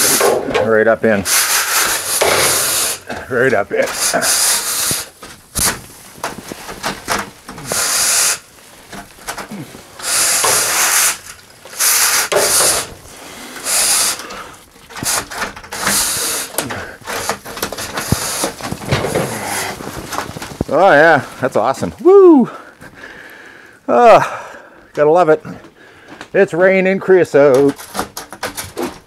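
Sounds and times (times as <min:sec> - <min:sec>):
chimney brush scraping metal pipe: 0:00.0 - 0:21.7.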